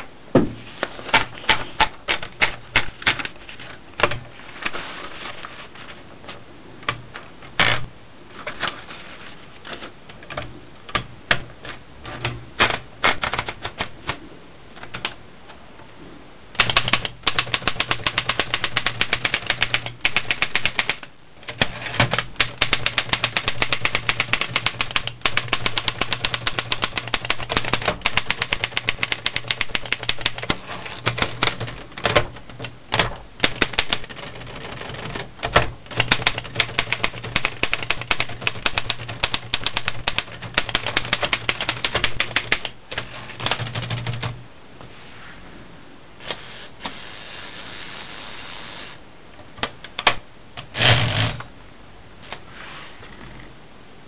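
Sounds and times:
manual typewriter keystrokes: 12.1s - 14.2s, 16.6s - 44.4s.

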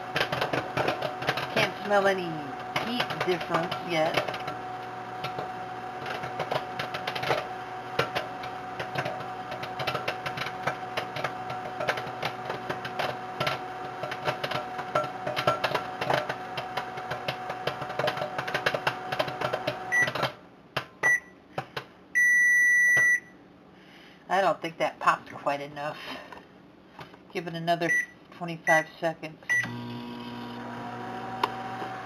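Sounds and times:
popcorn popping: 0.0s - 21.0s
microwave oven humming: 0.0s - 24.1s, 29.5s - 32.0s
microwave oven beeping: 1.6s - 20.4s, 21.0s - 21.4s, 22.2s - 23.4s, 27.8s - 28.9s, 29.5s - 32.0s.

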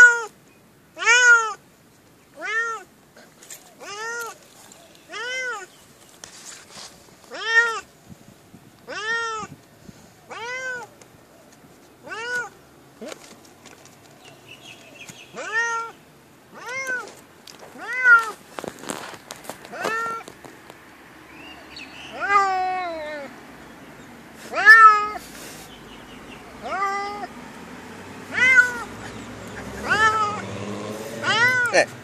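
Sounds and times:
cat meowing: 0.0s - 0.3s, 1.0s - 1.6s, 2.4s - 2.9s, 3.8s - 4.4s, 5.1s - 5.7s, 7.3s - 7.9s, 8.9s - 9.5s, 10.3s - 10.9s, 12.0s - 12.6s, 15.3s - 15.9s, 16.5s - 17.1s, 17.8s - 18.4s, 19.7s - 20.3s, 22.1s - 23.3s, 24.5s - 25.2s, 26.6s - 27.3s, 28.3s - 29.0s, 29.8s - 30.4s, 31.2s - 31.9s.

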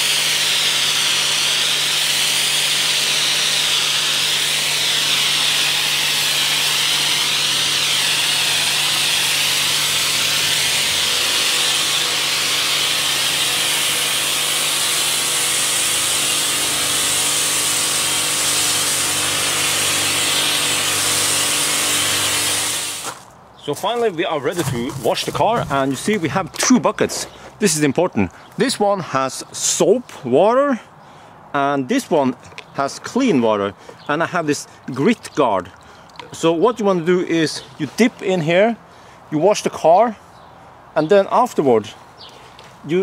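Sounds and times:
pressure washer spray hiss: 0.0s - 23.2s.

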